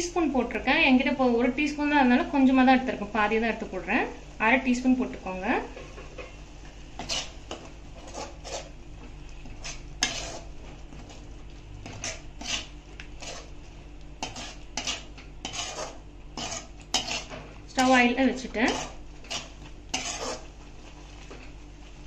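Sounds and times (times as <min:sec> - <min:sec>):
metal spoon scraping metal pot: 0:07.0 - 0:08.7, 0:09.5 - 0:11.2, 0:11.8 - 0:13.5, 0:14.2 - 0:20.5.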